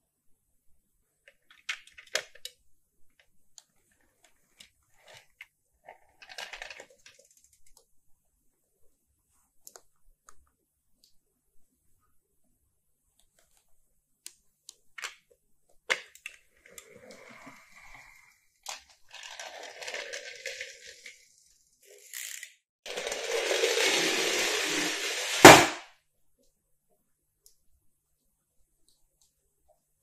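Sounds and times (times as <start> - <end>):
toy car rolling rattle: 5.9 - 7.6, 16.6 - 25.8
loud knock: 25.4 - 25.8.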